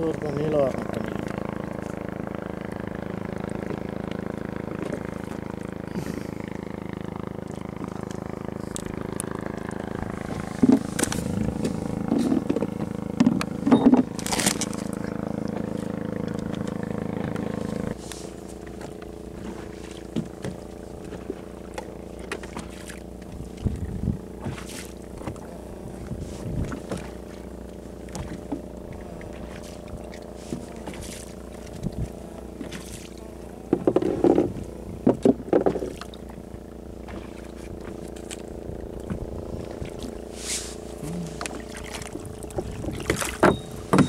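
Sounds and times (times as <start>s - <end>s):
knocks and bumps in boat: 0.0s - 7.0s, 7.6s - 44.0s
boat engine idling: 0.0s - 44.0s.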